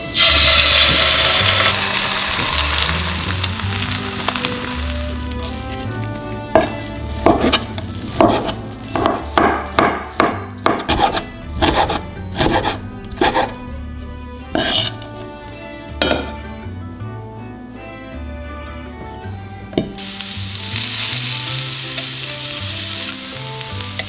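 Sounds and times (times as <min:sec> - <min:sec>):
soft background music: 0:00.0 - 0:24.0
knife chopping on cutting board: 0:06.6 - 0:13.5.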